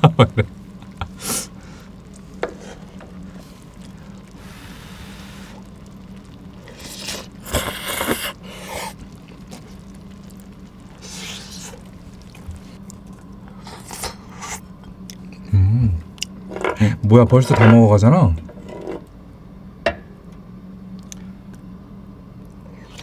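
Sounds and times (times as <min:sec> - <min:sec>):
chewing: 0:01.8 - 0:04.6, 0:05.2 - 0:15.5.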